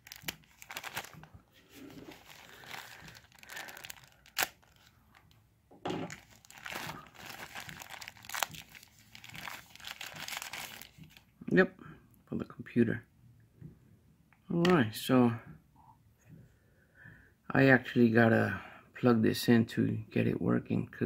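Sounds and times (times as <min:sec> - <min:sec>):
plastic bags crinkling: 0:00.0 - 0:11.3.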